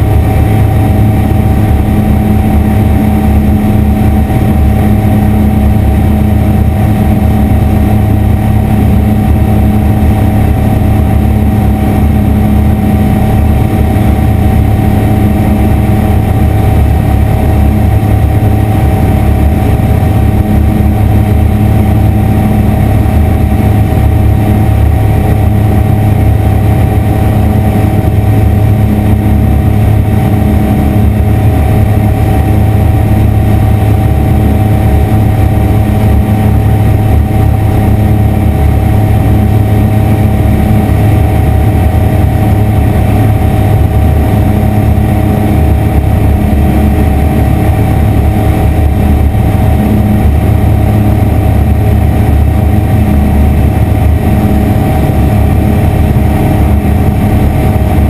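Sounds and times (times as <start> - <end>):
aircraft engine and propeller drone: 0.0 - 58.0.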